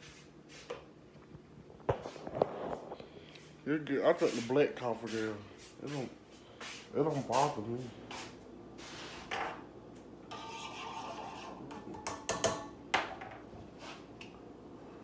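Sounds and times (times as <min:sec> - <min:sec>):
rubbing and scraping: 0:10.3 - 0:11.7.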